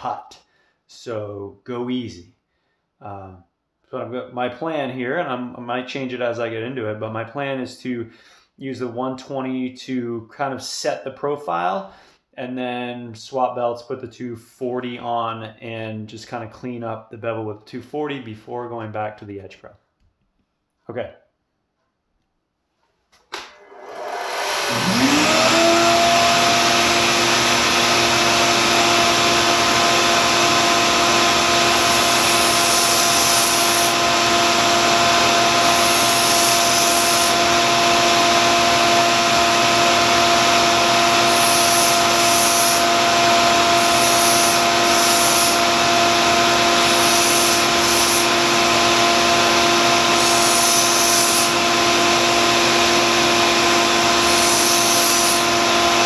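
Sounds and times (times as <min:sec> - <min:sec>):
belt sander running: 0:23.4 - 0:56.0
shop vacuum running: 0:23.4 - 0:56.0
knife blade grinding on belt: 0:43.8 - 0:45.6.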